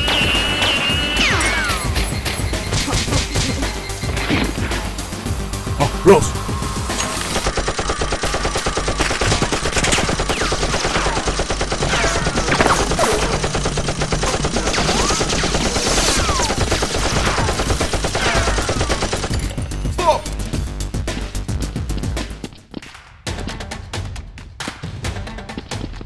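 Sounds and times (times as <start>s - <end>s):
falling whistling sounds: 0.0s - 4.2s
rapid toy gunfire: 7.2s - 19.5s.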